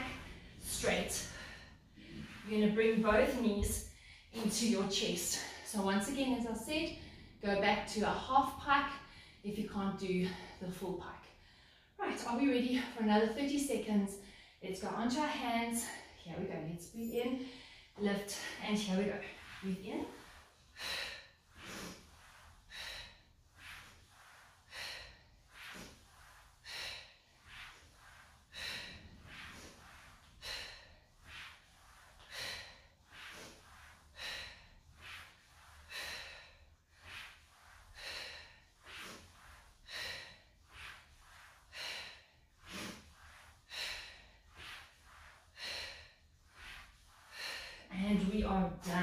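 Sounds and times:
woman breathing hard: 19.2s - 47.9s.

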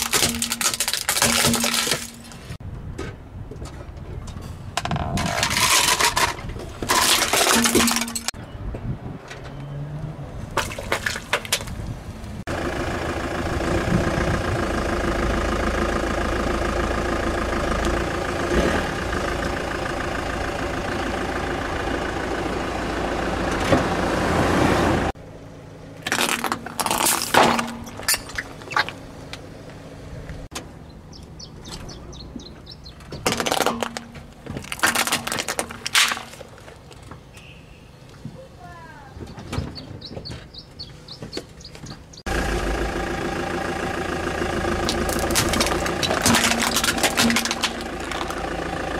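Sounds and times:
tyre crushing plastic toys: 0.0s - 2.6s, 4.8s - 8.4s, 26.0s - 29.0s, 33.1s - 37.0s, 44.8s - 48.4s
car engine running: 12.4s - 27.0s, 40.0s - 48.9s.

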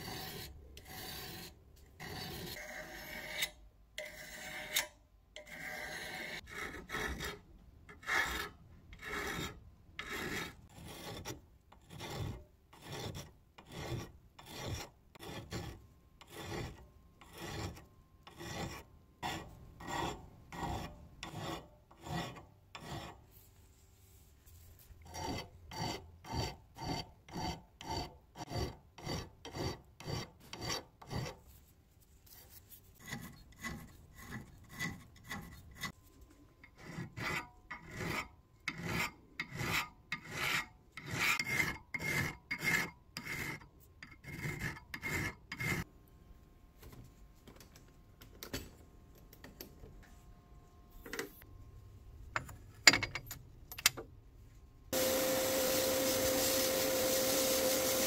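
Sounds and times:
hand file rasping on steel: 0.0s - 23.2s, 25.0s - 31.4s, 33.0s - 36.0s, 36.6s - 45.9s, 55.0s - 58.0s.

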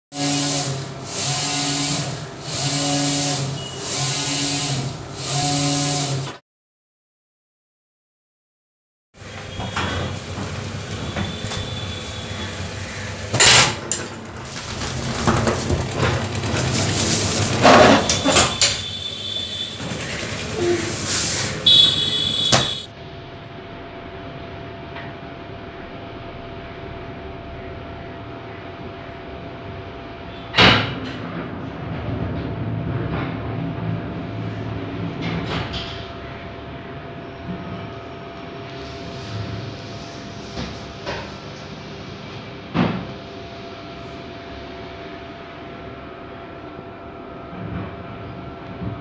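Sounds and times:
printer carriage motor whining: 0.2s - 6.3s, 9.2s - 22.9s
high squeal: 3.5s - 4.0s, 11.0s - 12.6s, 17.8s - 20.0s, 20.6s - 22.9s
machine hum: 9.2s - 30.6s.

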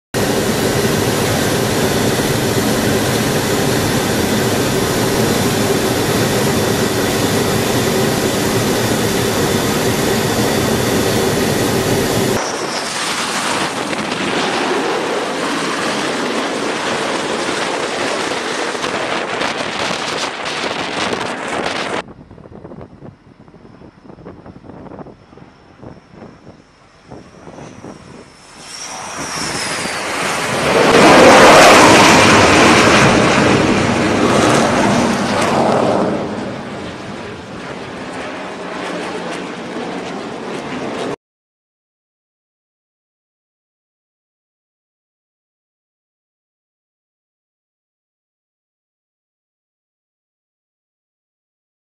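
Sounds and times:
aircraft drone: 0.1s - 41.2s
jet engines whining: 0.1s - 41.2s
wind noise: 0.2s - 41.1s.

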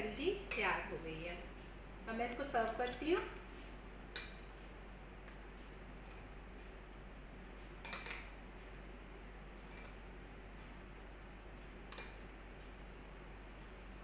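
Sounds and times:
metal spoon clinking on glass bowl: 4.1s - 4.5s, 11.9s - 12.3s.

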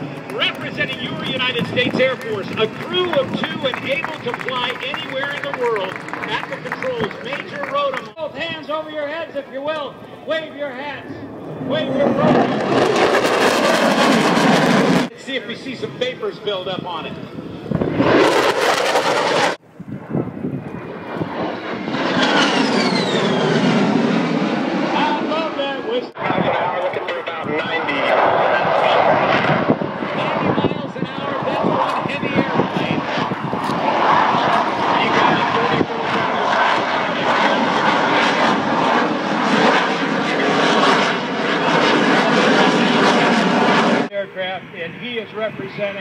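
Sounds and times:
jet aircraft flying overhead: 0.0s - 46.0s
high whine falling in pitch: 17.1s - 29.7s.

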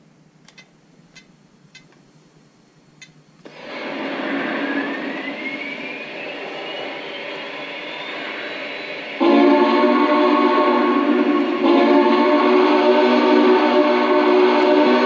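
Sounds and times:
loud steady steam hiss: 3.4s - 15.0s.

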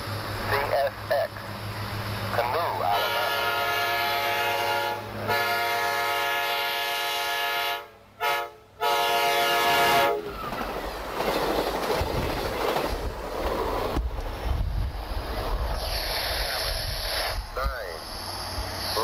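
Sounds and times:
passing train rumble: 0.0s - 19.0s
locomotive air horn blasts: 2.9s - 10.3s.

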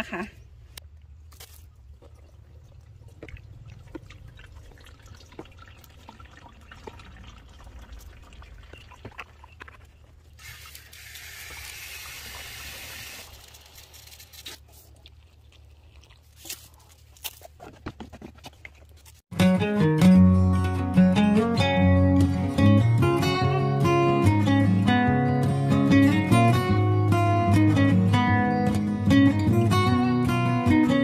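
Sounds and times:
liquid pouring and dribbling: 0.8s - 16.4s
liquid rushing: 2.0s - 13.6s.

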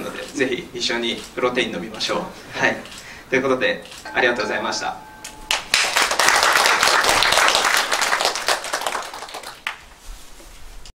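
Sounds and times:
audience applause: 5.5s - 9.8s
single clap: 5.5s - 9.9s.

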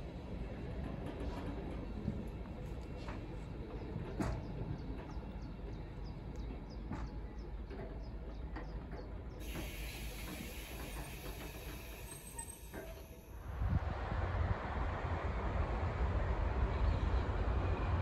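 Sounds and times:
low rumble of rolling coaches: 0.0s - 18.0s
train wheels clicking over track joints: 0.6s - 13.2s.

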